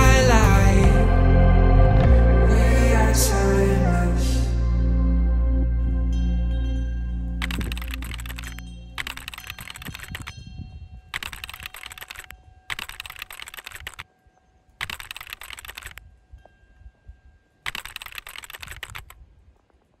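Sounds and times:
faint ringing tone: 6.1s - 19.1s
keyboard typing: 7.4s - 10.3s, 11.1s - 14.1s, 14.8s - 16.0s, 17.7s - 19.2s.

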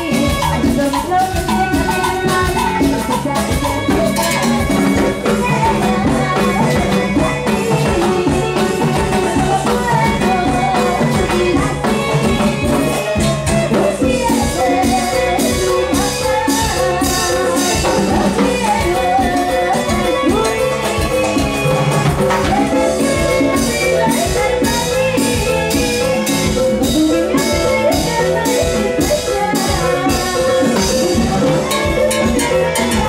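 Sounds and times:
latin dance band playing: 0.0s - 33.0s
woman singing into a microphone: 0.0s - 33.0s.

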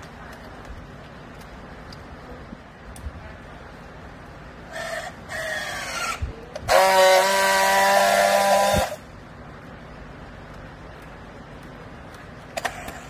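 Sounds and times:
strapping tool motor whining: 5.3s - 9.0s.

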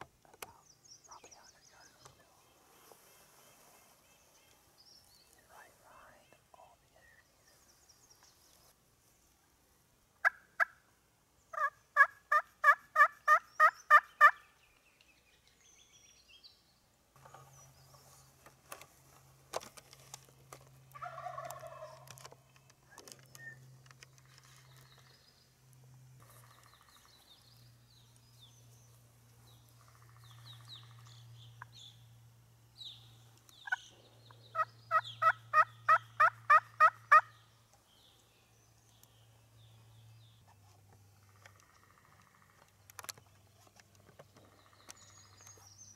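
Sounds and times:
soft bird calls: 0.1s - 9.6s, 10.2s - 19.4s, 20.1s - 45.9s
turkey yelps: 11.5s - 14.4s, 34.5s - 37.3s.

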